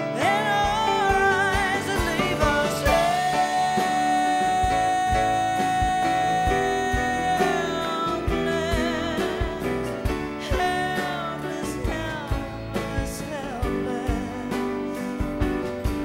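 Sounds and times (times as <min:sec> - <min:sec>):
woman singing with vibrato: 0:00.0 - 0:15.3
light drums: 0:00.0 - 0:16.0
plucked upright bass: 0:04.4 - 0:16.0.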